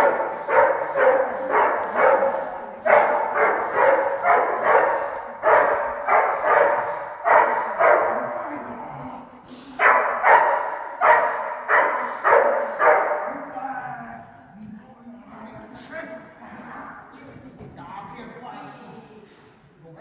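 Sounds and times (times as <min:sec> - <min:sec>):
dog barking: 0:00.0 - 0:08.4, 0:09.8 - 0:13.4.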